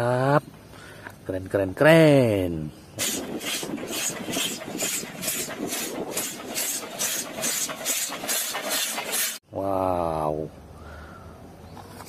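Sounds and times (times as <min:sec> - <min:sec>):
steam hissing: 0:03.0 - 0:09.4
steam locomotive chuffing: 0:03.0 - 0:09.4.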